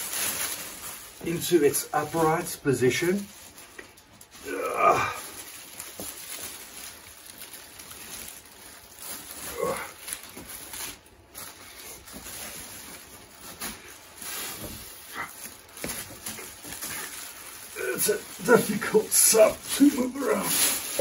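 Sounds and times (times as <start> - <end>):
plastic bag crinkling: 0.0 - 21.0
man grunting: 4.4 - 5.4, 9.5 - 10.0, 17.8 - 21.0.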